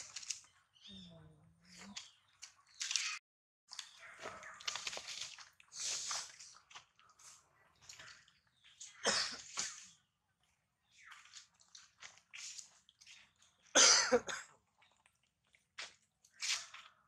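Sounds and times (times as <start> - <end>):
monkeys rustling in dry leaves: 3.8 - 8.3.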